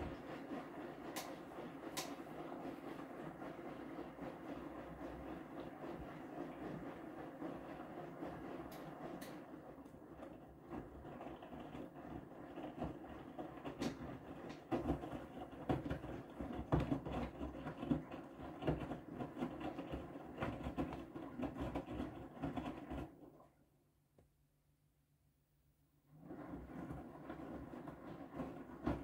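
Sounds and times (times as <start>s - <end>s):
washing machine drum rumbling: 0.0s - 23.2s
faint machine hum: 0.0s - 29.0s.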